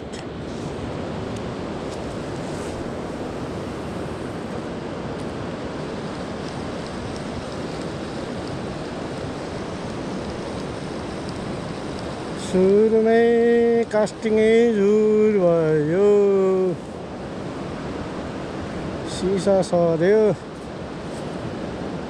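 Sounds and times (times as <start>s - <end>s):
fast-flowing river rushing: 0.0s - 22.0s.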